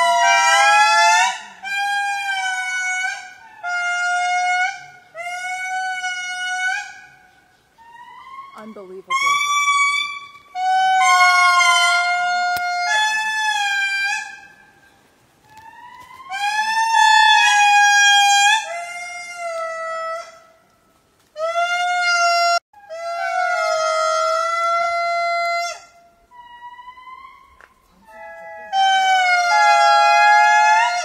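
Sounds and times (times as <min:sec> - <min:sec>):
lemur calling: 0:00.0 - 0:20.3.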